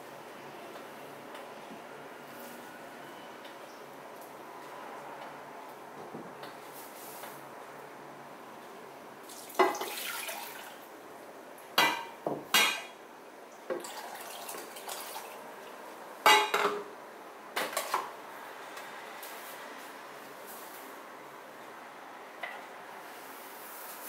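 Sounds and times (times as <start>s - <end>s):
water poured into a pot: 9.3s - 10.8s, 13.8s - 15.4s
kitchenware clinking and knocking: 11.8s - 12.9s, 16.3s - 16.9s.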